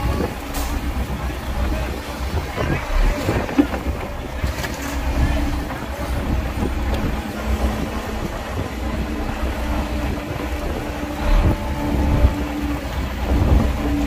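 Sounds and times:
diesel engine rumbling: 0.0s - 14.0s
wind buffeting microphone: 0.0s - 14.0s.

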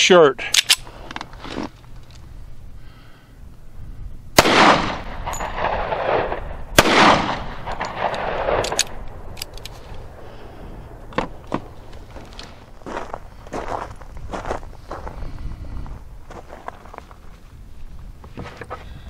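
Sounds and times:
pistol shots with echo: 4.4s - 9.0s.

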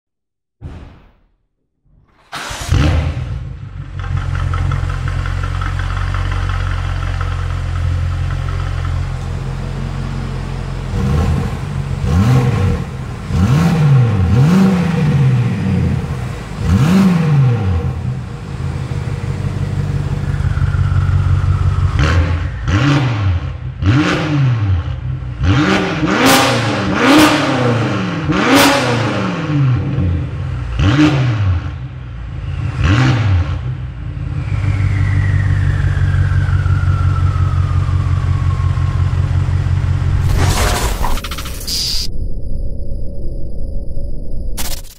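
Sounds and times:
car engine revving: 2.2s - 42.0s
thin falling whistle: 34.6s - 38.9s, 41.0s - 44.6s.

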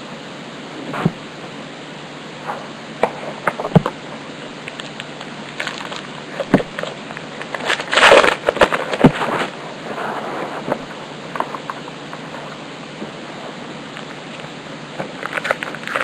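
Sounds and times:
cards rustling: 15.1s - 16.0s.

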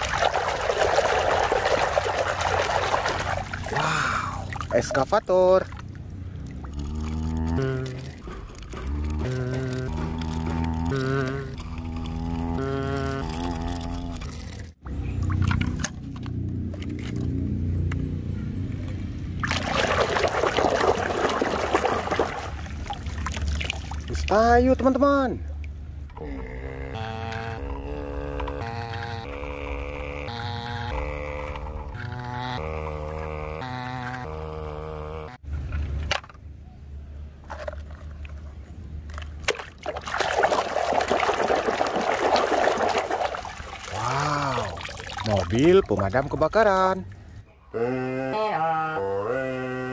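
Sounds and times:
water trickling and splashing: 0.0s - 12.4s, 14.8s - 17.4s, 19.4s - 26.0s, 37.5s - 47.4s.

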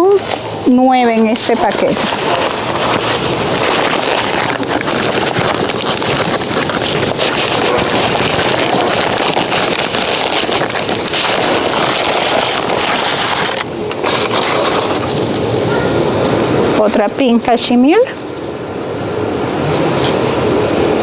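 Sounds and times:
paper rustling and crinkling: 1.2s - 16.4s.

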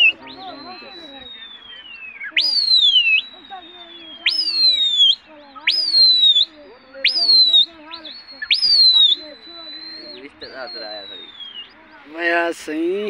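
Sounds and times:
long held falling whistle: 0.0s - 11.8s
sharp rising and falling whistles: 0.0s - 12.4s.

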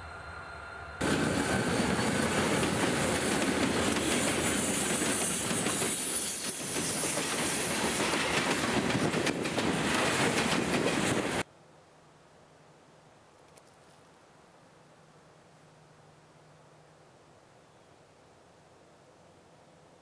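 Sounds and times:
freight train rumbling and rattling: 0.0s - 11.5s
wheels clacking over rail joints: 1.0s - 11.4s.

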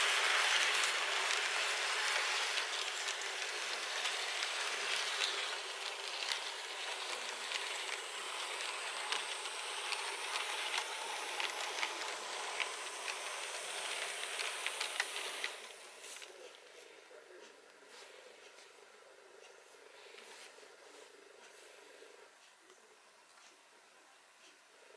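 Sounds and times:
model train wheels hissing on track: 0.0s - 16.4s
faint high whine: 0.0s - 24.9s.

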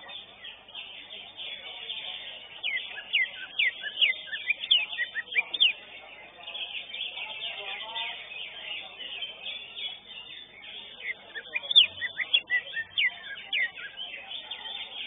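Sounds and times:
high chatter: 0.0s - 15.0s
bird singing sharp whistled notes: 2.5s - 5.8s, 9.5s - 15.0s.

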